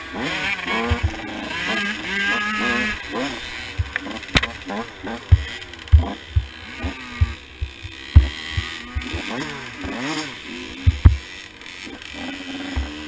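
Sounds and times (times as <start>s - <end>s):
dirt bike engine revving: 0.0s - 13.0s
loud low thumps: 10.8s - 11.2s.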